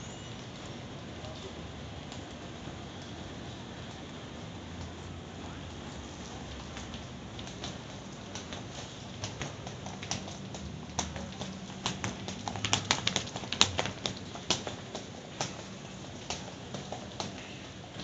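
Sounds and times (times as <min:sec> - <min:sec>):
footsteps on paving stones: 0:04.8 - 0:18.0.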